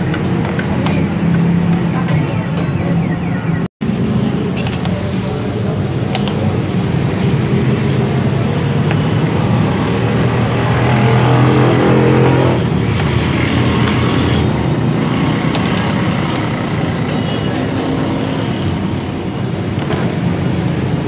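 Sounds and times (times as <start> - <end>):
low motor drone: 6.9 - 19.1.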